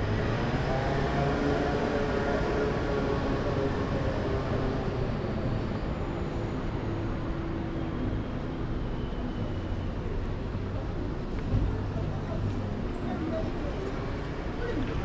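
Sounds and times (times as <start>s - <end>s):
cars passing: 0.0s - 8.0s.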